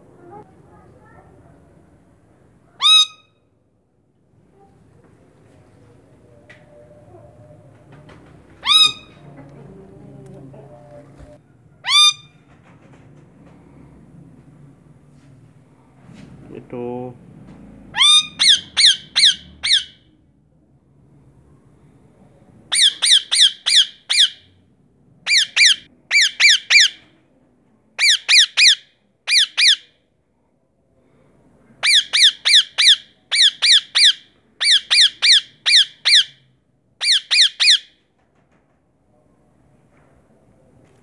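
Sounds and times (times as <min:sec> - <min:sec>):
parakeet squawking: 0:02.8 - 0:03.3, 0:08.6 - 0:09.2, 0:11.8 - 0:12.3, 0:17.9 - 0:20.1, 0:22.7 - 0:24.5, 0:25.3 - 0:27.0, 0:28.0 - 0:29.9, 0:31.8 - 0:36.4, 0:37.0 - 0:37.9.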